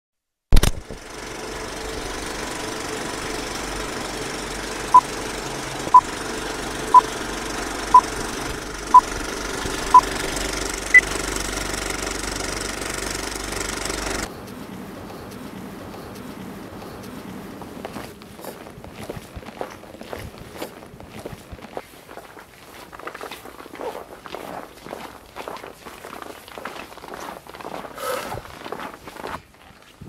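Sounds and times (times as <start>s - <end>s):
film projector clatter: 0.6s - 14.3s.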